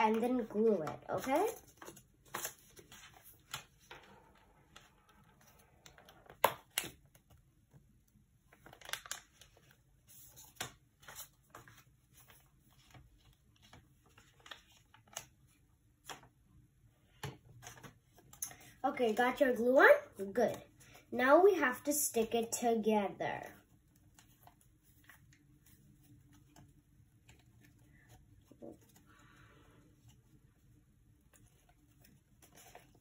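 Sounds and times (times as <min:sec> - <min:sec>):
paper rustling and crinkling: 0:00.0 - 0:07.4, 0:08.5 - 0:16.4, 0:23.6 - 0:33.0.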